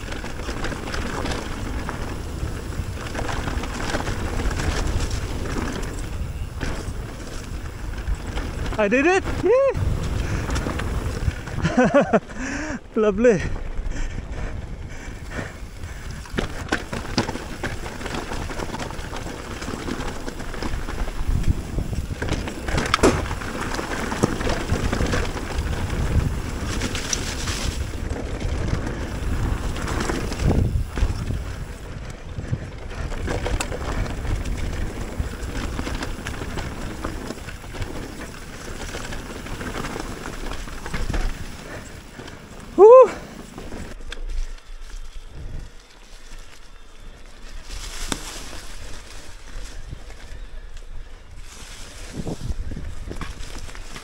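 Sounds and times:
bike knocks and rattles: 0.0 - 12.2, 15.9 - 42.6, 52.0 - 54.0
wind buffeting microphone: 0.0 - 54.0.

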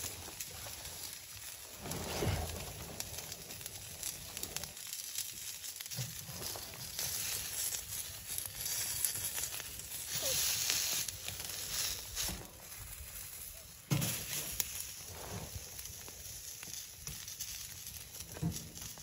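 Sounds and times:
crackling hiss of stove fire: 0.0 - 19.0.

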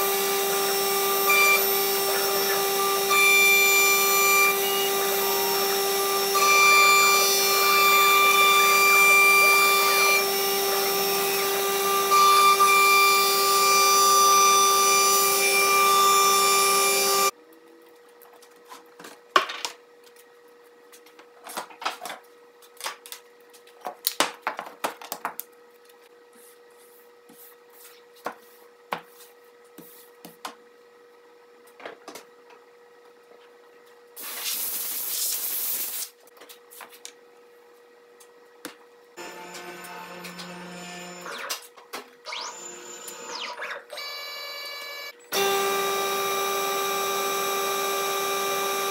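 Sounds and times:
router spindle whining: 0.0 - 17.3, 39.2 - 41.5, 42.3 - 48.9.

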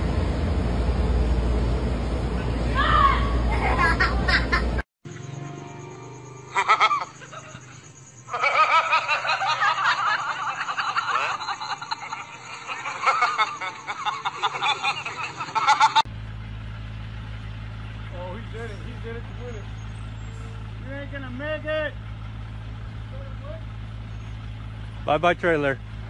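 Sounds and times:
steady low hum: 0.0 - 26.0
people laughing and giggling: 3.5 - 4.8, 6.5 - 16.0.

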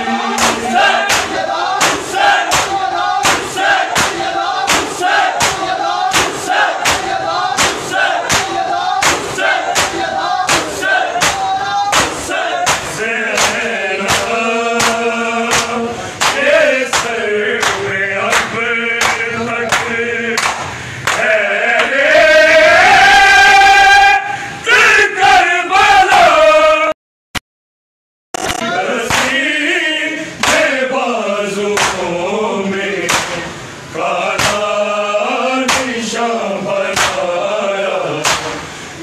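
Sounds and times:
men chanting a lament: 0.0 - 26.9, 28.6 - 39.0
crowd slapping chests in unison: 0.2 - 22.0, 29.0 - 29.4, 30.4 - 30.8, 31.7 - 32.1, 33.0 - 33.6, 34.3 - 34.8, 35.6 - 36.0, 36.8 - 37.4, 38.2 - 38.6.

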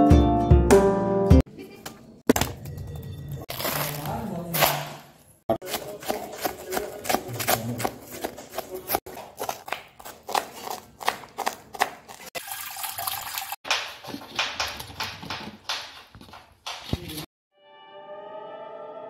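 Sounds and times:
knife chopping on wooden board: 5.6 - 12.2
water splashing in bowl: 12.4 - 13.6.

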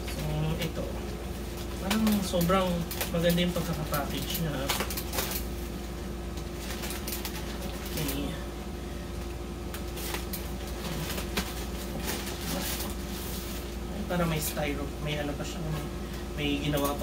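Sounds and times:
plastic crinkling: 0.0 - 8.4, 9.1 - 14.7
steady hum: 0.0 - 17.0
scissors cutting plastic bag: 1.8 - 5.5, 6.6 - 8.3, 9.7 - 13.0.

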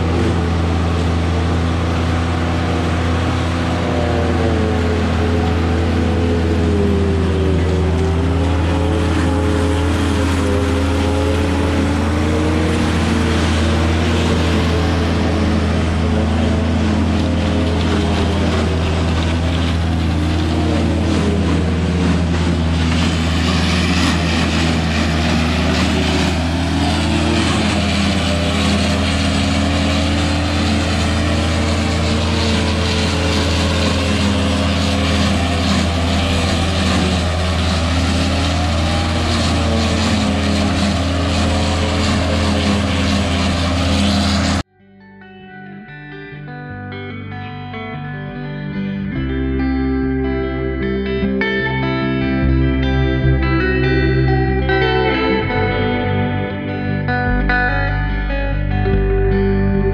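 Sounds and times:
chopper and blower rushing hiss: 0.0 - 44.6
engine droning under load: 0.0 - 44.7.

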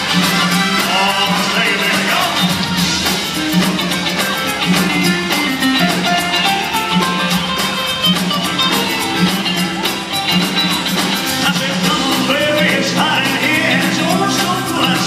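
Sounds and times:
live band playing upbeat song: 0.0 - 15.0
lead singer singing: 11.0 - 15.0.

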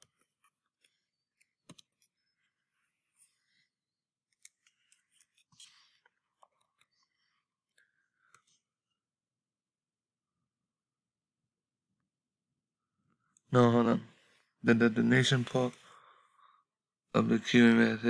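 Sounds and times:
mouse clicks: 1.4 - 2.1.

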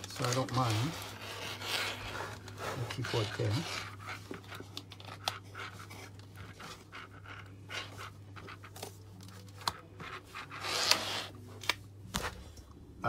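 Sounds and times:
cable handling clicks and rustles: 0.0 - 1.2, 2.3 - 7.5.

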